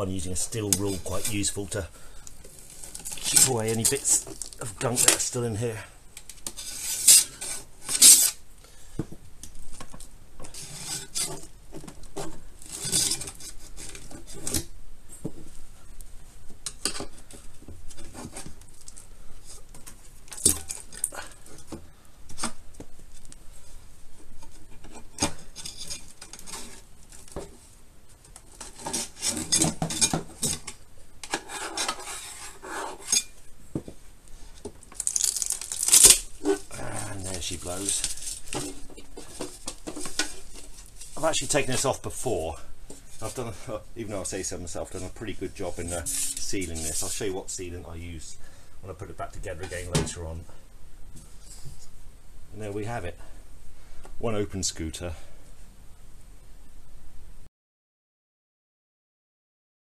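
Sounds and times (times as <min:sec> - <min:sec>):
steel rule scraping metal: 0:06.6 - 0:08.4, 0:31.3 - 0:33.4, 0:45.7 - 0:47.2.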